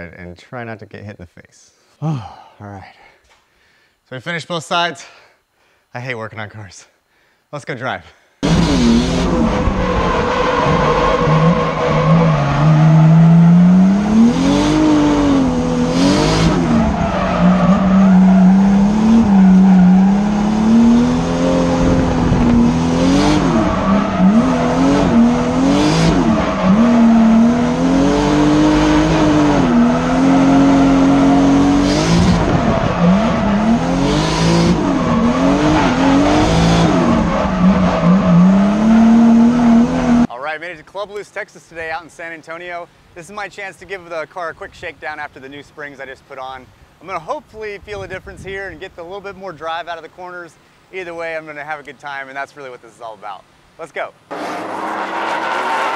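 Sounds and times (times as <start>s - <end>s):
car engine revving: 8.4s - 40.3s, 54.3s - 55.9s
tyre squeal: 8.5s - 14.0s, 16.2s - 21.8s, 54.3s - 55.9s.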